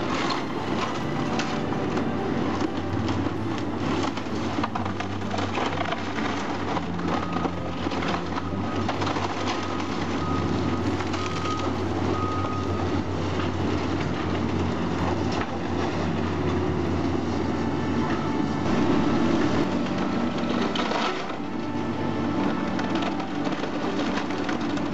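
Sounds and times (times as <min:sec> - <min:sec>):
excavator diesel engine under load: 0:00.0 - 0:24.9
falling debris: 0:00.0 - 0:24.9
splintering timber cracking: 0:00.0 - 0:24.9.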